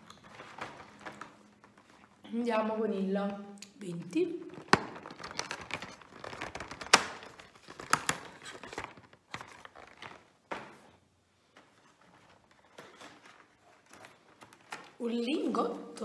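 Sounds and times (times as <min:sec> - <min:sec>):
cardboard snapping and tearing: 0:04.5 - 0:10.3.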